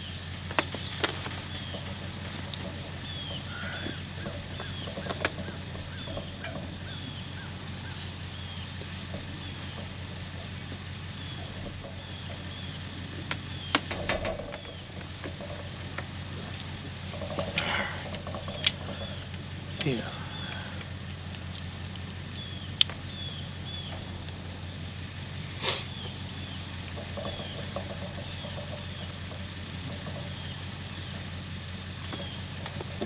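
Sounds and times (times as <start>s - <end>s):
sharp clicks and knocks: 0.0s - 25.1s, 26.0s - 33.0s
bird chirping: 0.0s - 33.0s
low hum: 0.0s - 33.0s.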